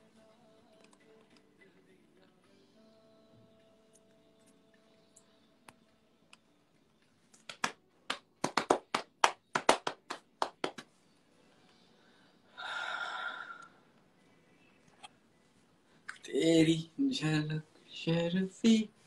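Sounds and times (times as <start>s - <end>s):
person clapping: 7.4s - 10.9s.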